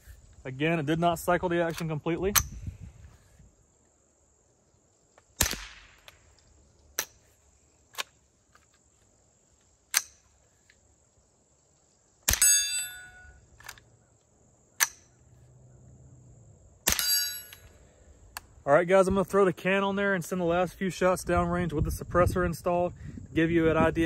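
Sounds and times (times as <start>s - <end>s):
high insect buzz: 2.6s - 5.4s
rifle shots cracking: 5.4s - 6.2s, 12.2s - 12.9s, 16.8s - 17.5s
metallic ring: 12.3s - 13.5s, 16.9s - 17.8s.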